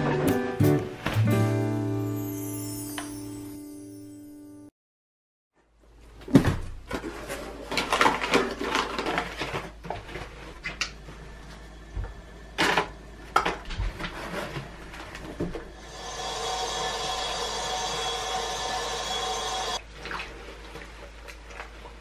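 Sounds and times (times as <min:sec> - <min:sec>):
plastic bag crinkling: 0:06.9 - 0:10.7.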